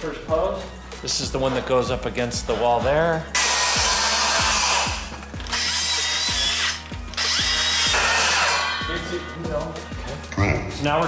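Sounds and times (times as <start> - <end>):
music with steady beat: 0.0 - 11.0
circular saw cutting wood: 3.4 - 8.7.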